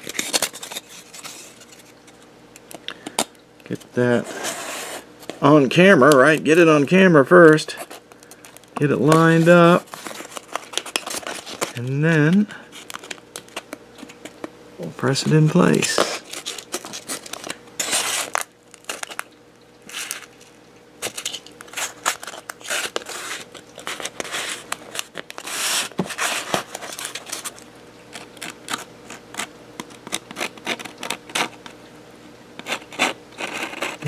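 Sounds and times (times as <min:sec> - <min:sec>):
foam rubbing and scraping: 0:04.1 - 0:05.1, 0:25.4 - 0:27.4, 0:32.6 - 0:34.0.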